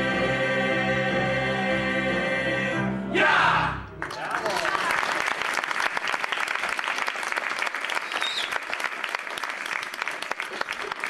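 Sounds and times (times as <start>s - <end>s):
audience applauding: 3.9s - 11.0s.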